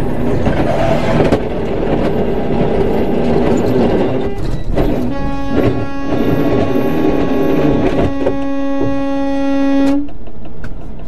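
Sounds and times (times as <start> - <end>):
diesel truck engine rumbling: 0.0 - 11.0
sustained multi-pitch tone: 2.9 - 10.1.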